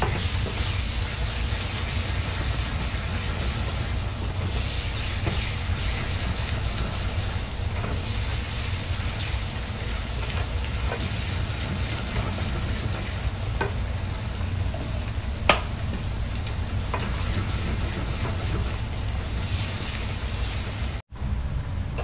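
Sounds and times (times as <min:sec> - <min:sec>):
food sizzling in a frying pan: 0:00.0 - 0:21.0.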